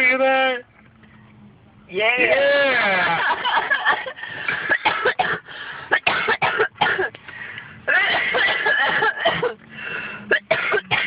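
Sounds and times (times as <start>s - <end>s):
people laughing: 2.7s - 4.2s.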